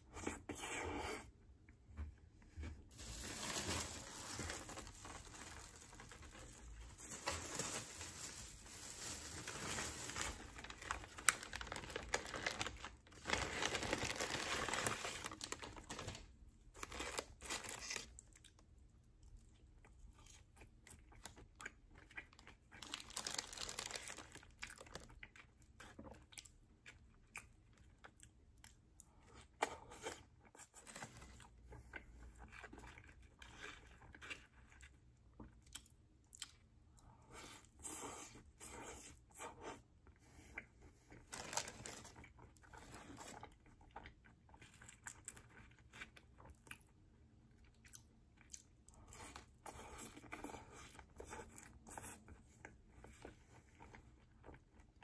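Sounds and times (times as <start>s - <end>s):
plastic bag and wrappers rustling: 2.8s - 18.2s, 22.8s - 25.1s, 41.1s - 43.5s.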